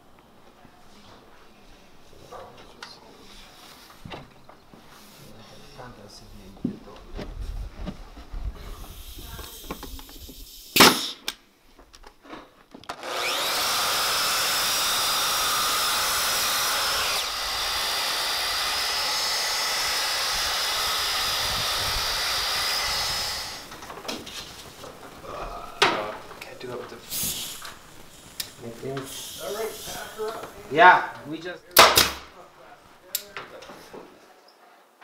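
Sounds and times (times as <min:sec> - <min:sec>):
nail gun firing: 0:10.8 - 0:11.4, 0:31.8 - 0:32.3
miter saw cutting wood: 0:12.9 - 0:23.9.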